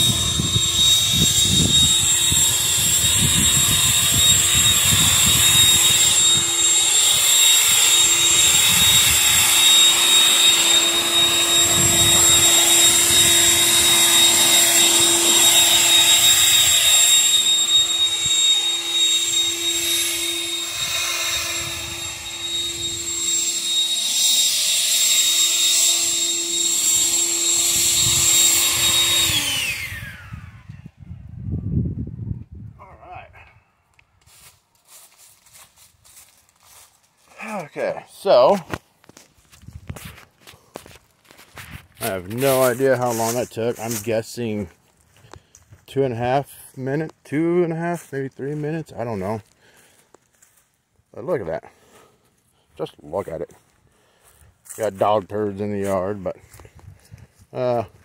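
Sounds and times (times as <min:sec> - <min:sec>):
electric leaf blower whining: 0:00.0 - 0:31.0, 0:34.3 - 0:44.1.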